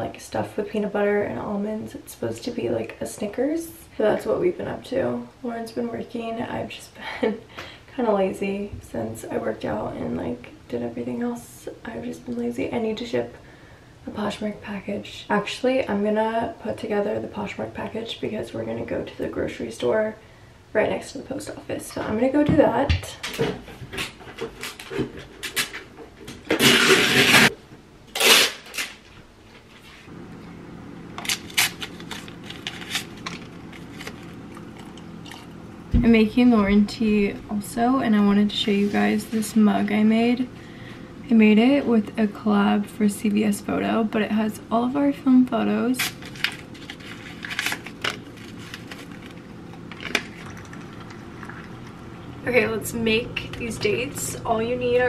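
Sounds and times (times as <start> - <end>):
steady low hum: 0.0 - 55.0
paper envelope crinkling and tearing: 31.2 - 34.5, 46.0 - 50.6
packing materials rustling: 31.2 - 34.9, 46.0 - 50.7.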